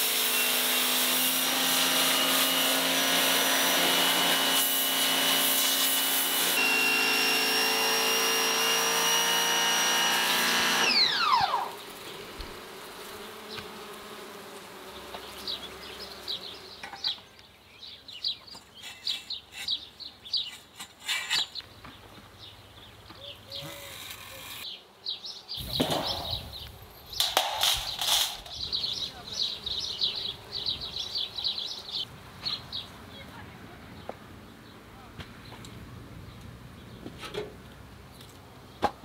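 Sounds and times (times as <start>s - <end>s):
pressure washer spraying: 0.0s - 6.8s
motor winding down whine: 5.3s - 11.8s
birds chirping: 14.8s - 37.2s
scrape: 18.6s - 21.6s.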